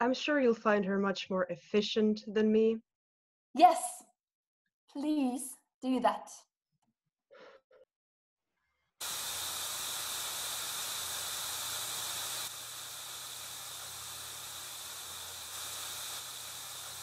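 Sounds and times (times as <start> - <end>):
telephone line static hiss: 9.0 - 17.0.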